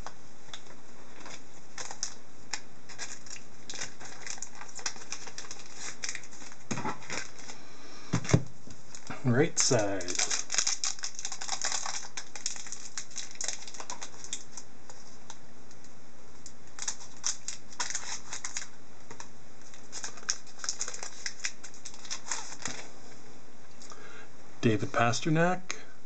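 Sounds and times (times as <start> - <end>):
foil wrapper crinkling: 0.0 - 7.6, 8.2 - 15.3, 16.6 - 22.9
cards clicking and rustling: 9.6 - 15.0, 16.7 - 22.9.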